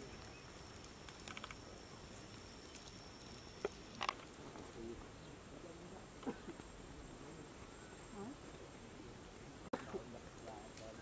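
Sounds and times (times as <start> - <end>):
high insect trill: 0.0 - 5.5
sharp clicks: 0.8 - 1.6.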